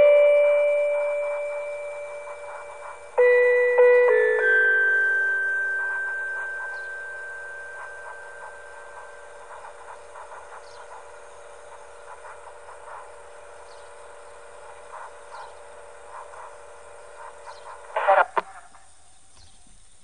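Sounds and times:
loudspeaker chime: 0.0s - 9.6s
faint steady hum: 0.0s - 20.0s.

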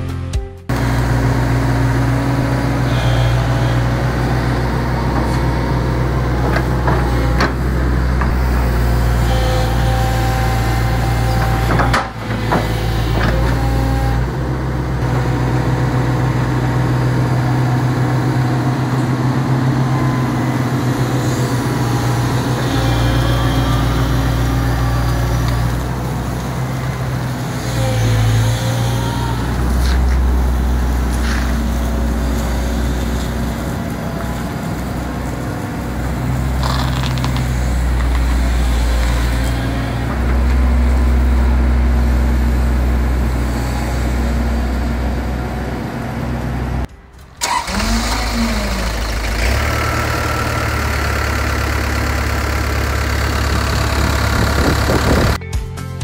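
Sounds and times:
diesel engine idling: 0.7s - 55.4s.

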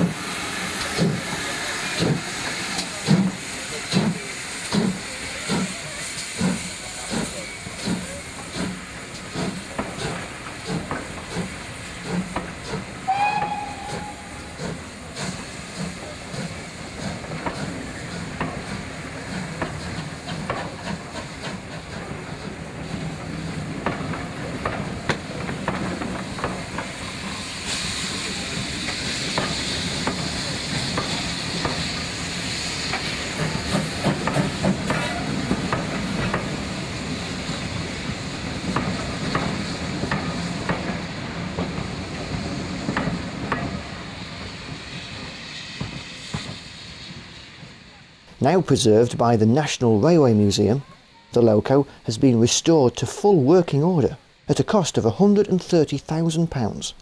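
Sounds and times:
steam hissing: 0.0s - 55.5s.

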